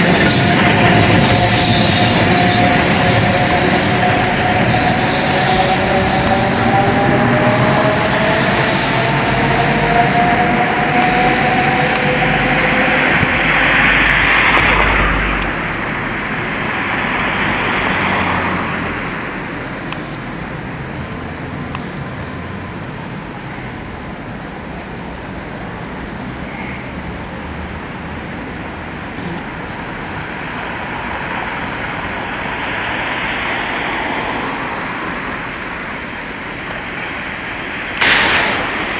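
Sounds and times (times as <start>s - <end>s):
wheels rolling on rails: 0.0s - 23.5s
tram motor whine: 0.0s - 25.6s
street traffic noise: 0.0s - 38.9s.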